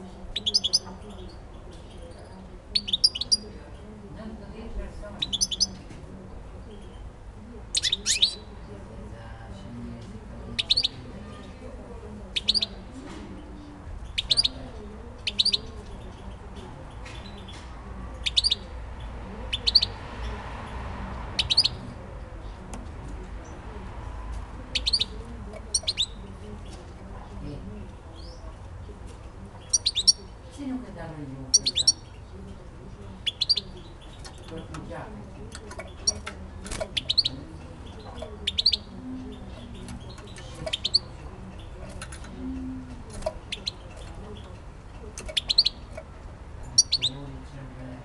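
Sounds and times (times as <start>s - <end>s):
bird chirping: 0.3s - 3.8s, 5.2s - 5.9s, 7.7s - 8.7s, 10.5s - 11.7s, 12.3s - 22.6s, 24.7s - 27.0s, 28.1s - 30.6s, 31.5s - 47.4s.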